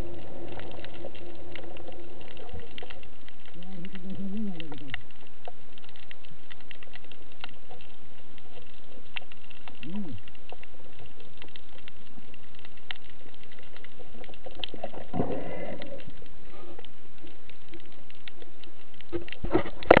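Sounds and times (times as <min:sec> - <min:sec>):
underwater hiss: 0:14.7 - 0:17.3.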